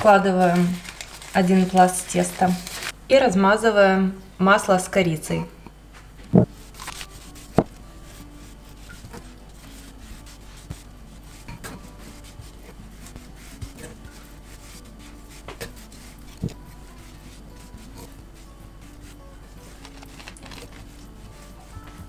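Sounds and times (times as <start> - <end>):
spatula rubbing and scraping: 6.4 - 22.0.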